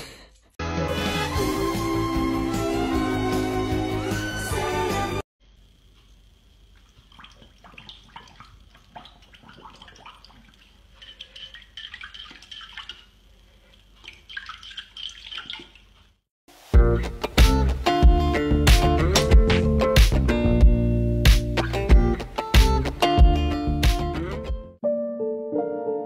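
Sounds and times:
water splashing in bowl: 0:06.7 - 0:16.2.

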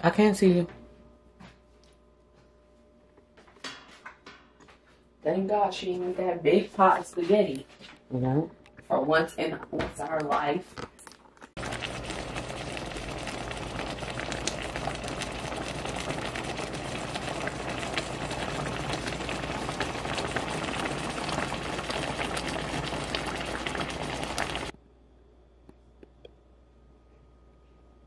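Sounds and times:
sauce bubbling and popping: 0:11.0 - 0:24.7.

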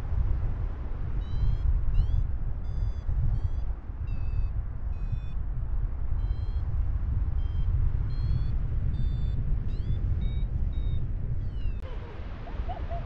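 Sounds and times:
wind buffeting microphone: 0:00.0 - 0:13.0
variometer electronic beeps: 0:01.2 - 0:05.4, 0:06.2 - 0:06.7, 0:07.4 - 0:11.8.

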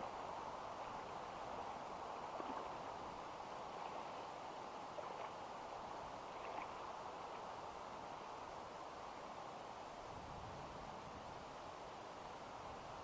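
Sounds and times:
river water flowing over stones: 0:00.0 - 0:10.1.

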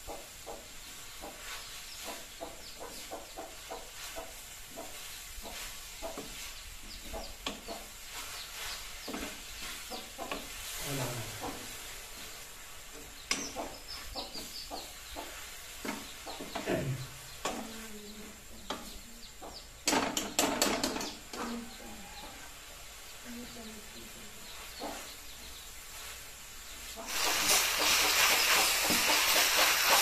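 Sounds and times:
water hissing in hot pan: 0:03.1 - 0:14.2, 0:21.7 - 0:30.0
food sizzling: 0:03.8 - 0:18.5, 0:22.5 - 0:30.0.

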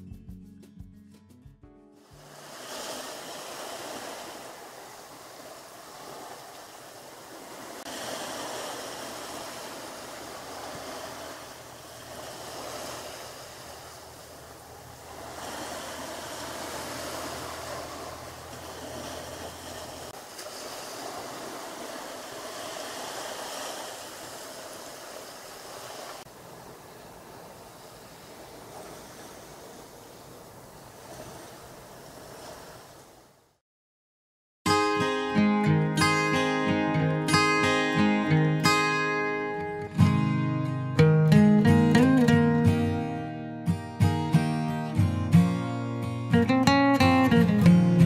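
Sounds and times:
waves washing onto pebbles: 0:02.0 - 0:33.3.

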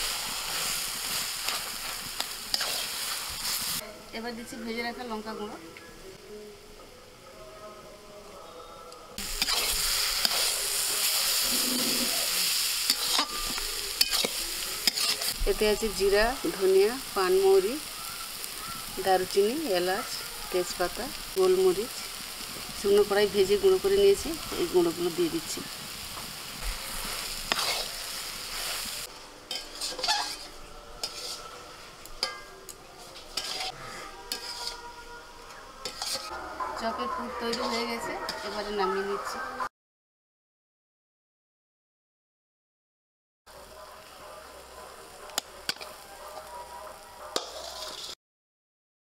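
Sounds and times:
food sizzling in oil: 0:00.0 - 0:06.0, 0:09.2 - 0:39.4, 0:43.5 - 0:48.2
spatula scraping a pan: 0:00.1 - 0:03.8, 0:09.2 - 0:15.4, 0:25.9 - 0:35.0, 0:35.8 - 0:36.3, 0:37.4 - 0:38.8, 0:47.3 - 0:48.2.

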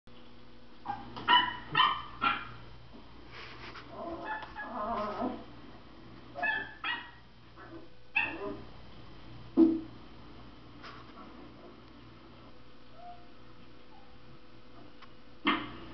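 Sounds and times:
dog yipping and barking: 0:00.8 - 0:02.6, 0:04.2 - 0:05.2, 0:06.4 - 0:08.6
dog whining: 0:03.9 - 0:05.4, 0:06.4 - 0:08.6, 0:12.9 - 0:14.2.

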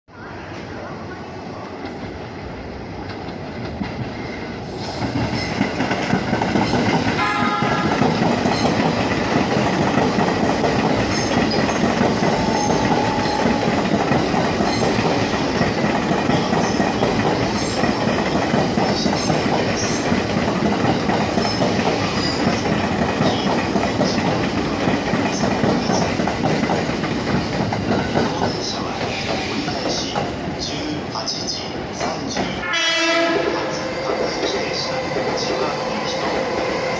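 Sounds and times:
electric train passing: 0:00.7 - 0:36.9
short high tone: 0:12.4 - 0:13.8.

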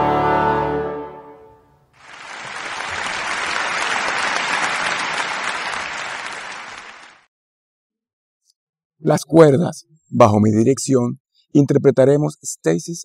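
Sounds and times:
applause: 0:02.0 - 0:07.3.

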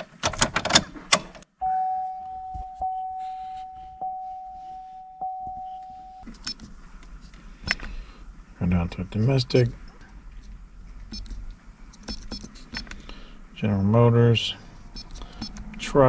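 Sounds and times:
high electronic tone: 0:01.6 - 0:06.3.

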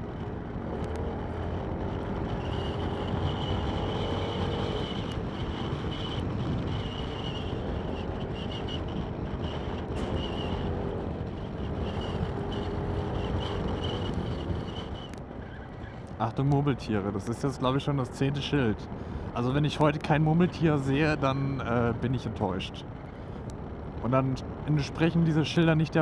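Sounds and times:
wind and road noise: 0:00.0 - 0:26.0
scooter engine cruising: 0:00.9 - 0:15.2.

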